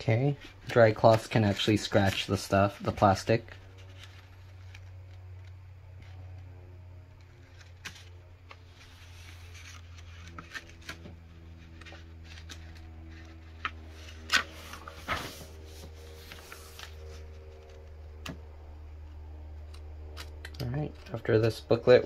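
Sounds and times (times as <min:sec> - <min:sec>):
steady low hum: 0:00.0 - 0:22.0
paper pages rustling: 0:00.2 - 0:06.5, 0:07.1 - 0:18.4.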